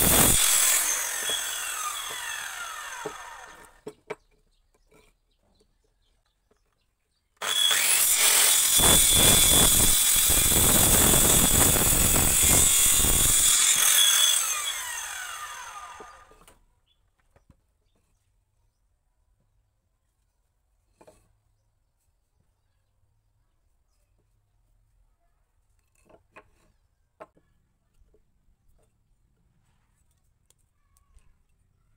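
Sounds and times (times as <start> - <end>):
saw whine winding down: 0.0 - 3.8, 7.4 - 16.5
circular saw cutting wood: 0.0 - 3.9, 7.4 - 16.6.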